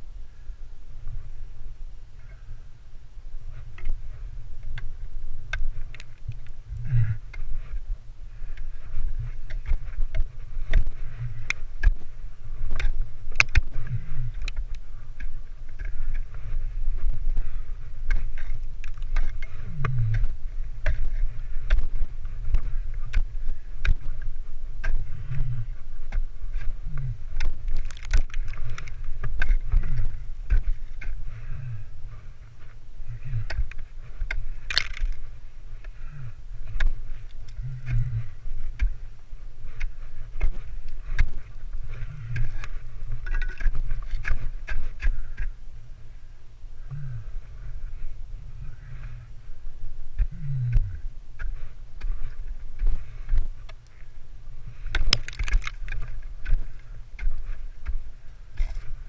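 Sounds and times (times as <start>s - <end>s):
low microphone rumble: 0.0s - 59.0s
ice axe striking ice: 27.7s - 28.7s, 34.7s - 35.1s, 55.0s - 55.8s.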